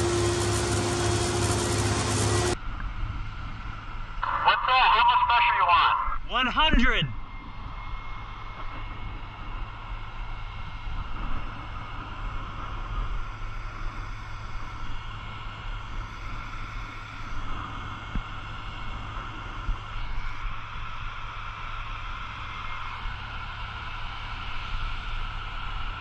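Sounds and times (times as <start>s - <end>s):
water stream rushing: 0.0s - 2.6s
low rumble: 0.0s - 26.0s.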